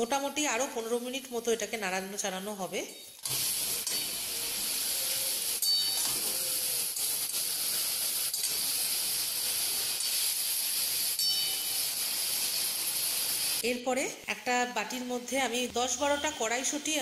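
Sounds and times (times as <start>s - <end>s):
vegetables sizzling in pan: 3.0s - 17.0s
metal spatula scraping pan: 5.2s - 7.8s.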